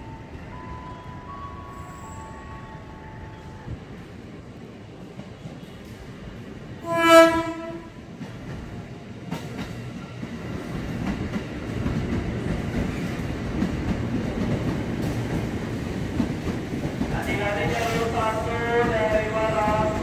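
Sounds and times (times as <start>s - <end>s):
train horn blast: 6.8s - 8.0s
train wheels clattering on rails: 7.3s - 20.0s.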